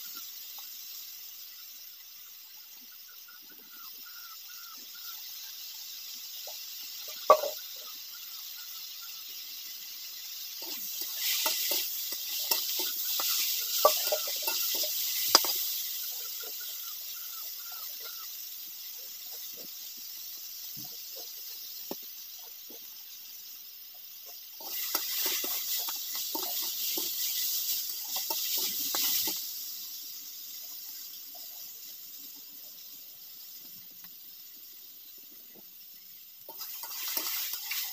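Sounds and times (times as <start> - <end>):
vegetables sizzling in oil: 0.0 - 37.9.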